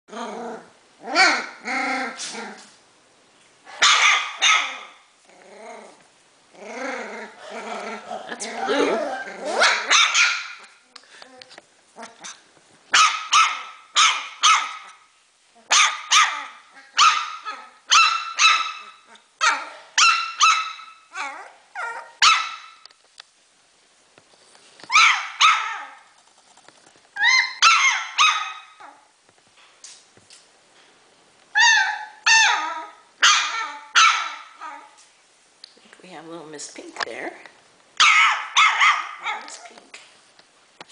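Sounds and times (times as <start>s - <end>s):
puppy barking: 3.7s - 5.0s, 9.5s - 10.7s, 12.9s - 14.9s, 15.7s - 22.8s, 24.9s - 26.0s, 27.2s - 29.0s, 31.6s - 34.9s, 38.0s - 39.6s.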